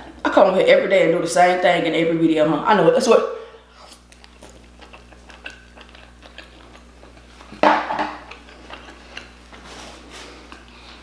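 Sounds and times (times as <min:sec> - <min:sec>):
close chewing with wet mouth clicks: 0:03.9 - 0:07.6, 0:08.2 - 0:09.6.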